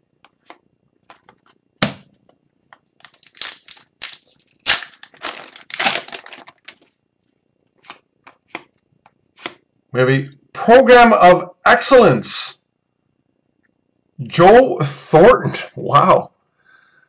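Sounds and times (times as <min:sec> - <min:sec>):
foil wrapper tearing and crinkling: 0:03.0 - 0:06.9.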